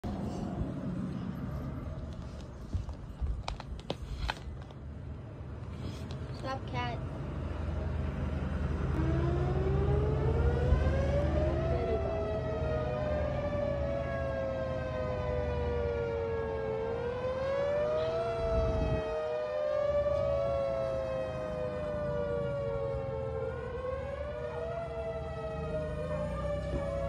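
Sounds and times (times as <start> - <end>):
sirens wailing: 8.3 - 27.0.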